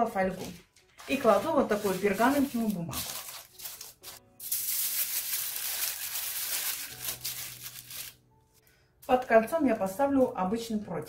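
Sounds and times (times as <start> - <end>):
parchment paper rustling and crinkling: 0.2 - 8.2.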